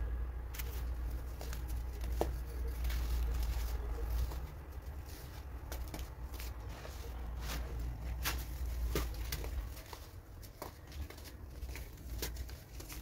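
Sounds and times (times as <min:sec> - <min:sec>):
low steady hum: 0:00.0 - 0:13.0
fingers crumbling powder lumps: 0:00.5 - 0:13.0.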